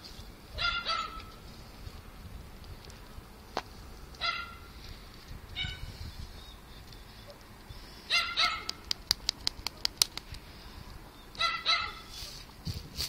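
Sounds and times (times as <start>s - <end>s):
sharp clicks: 8.6s - 10.4s.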